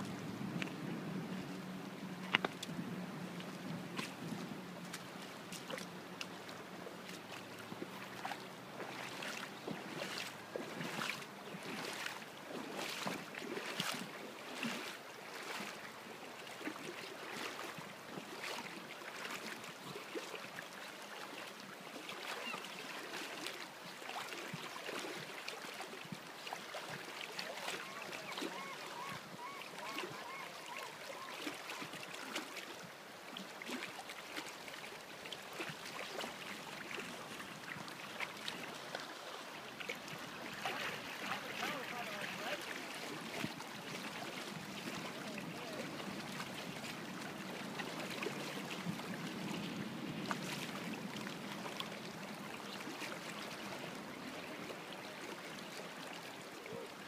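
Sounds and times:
river water rushing: 0.0s - 57.0s
short wavering call: 27.8s - 31.4s.

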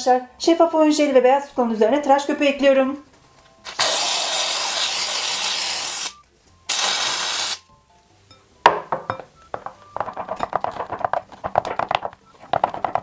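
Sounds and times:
aerosol can spraying foam: 3.8s - 6.1s, 6.7s - 7.6s.

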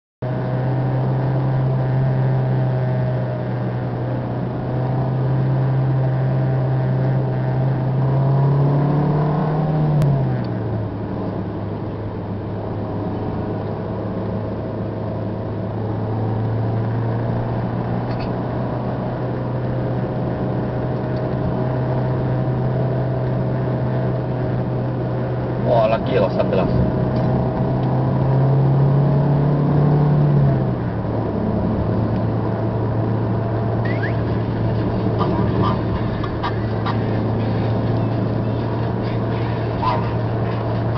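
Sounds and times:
car engine droning: 0.2s - 40.9s
road and wind noise: 0.2s - 40.9s.

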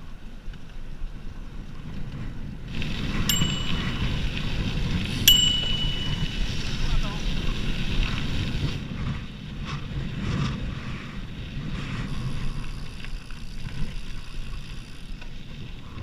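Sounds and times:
wind buffeting microphone: 0.6s - 16.0s
tyres rolling on gravel: 2.6s - 10.7s.

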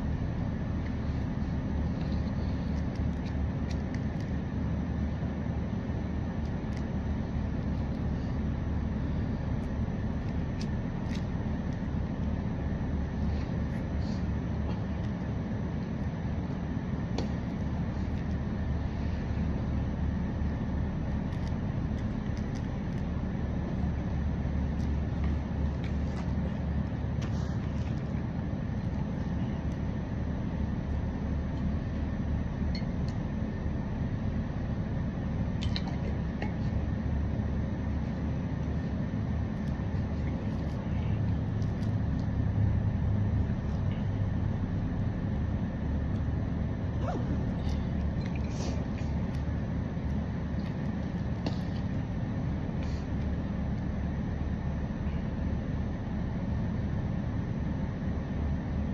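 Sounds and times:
low background rumble: 0.0s - 58.9s.

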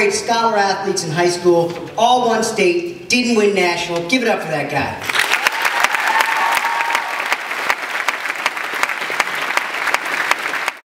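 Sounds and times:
audience applauding: 5.0s - 10.9s.

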